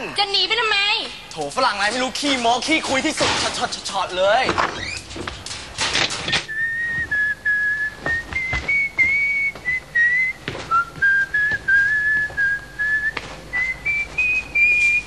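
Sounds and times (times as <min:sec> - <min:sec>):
person whistling a slow tune: 0:06.5 - 0:15.0.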